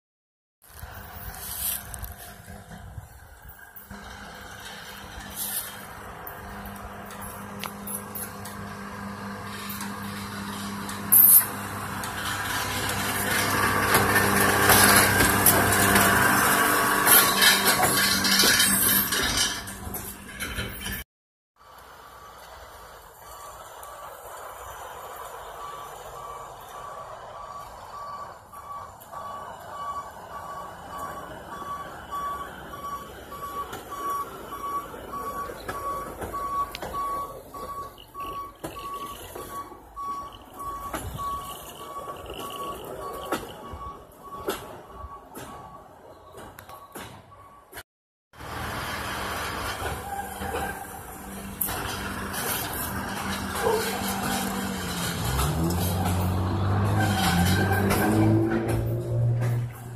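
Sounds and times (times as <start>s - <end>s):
diesel machine passing on rails: 0.7s - 21.0s, 21.6s - 46.4s, 48.4s - 59.9s
metallic clanking and rattling: 9.4s - 21.0s, 49.6s - 59.9s
back-up alarm beeping: 24.6s - 47.8s.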